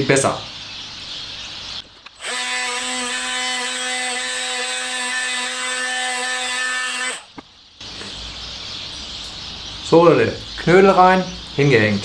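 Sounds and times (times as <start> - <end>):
angle grinder cutting wire mesh: 2.1 - 7.3.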